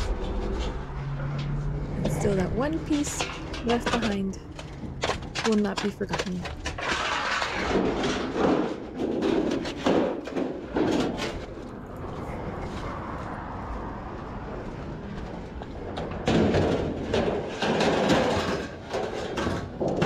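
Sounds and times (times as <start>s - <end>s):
sheet metal crinkling and clattering: 0.0s - 13.5s, 14.6s - 20.0s.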